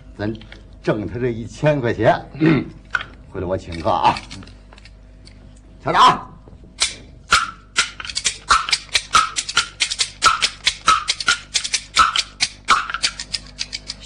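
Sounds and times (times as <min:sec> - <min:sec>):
bamboo clappers clacking: 0:06.8 - 0:14.0.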